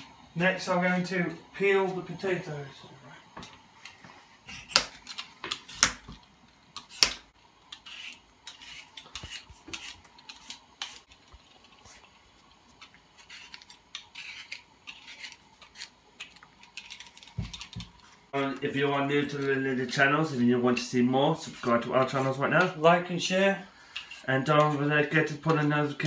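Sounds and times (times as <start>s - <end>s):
peeler scraping potatoes: 4.4s - 6.1s, 6.7s - 26.0s.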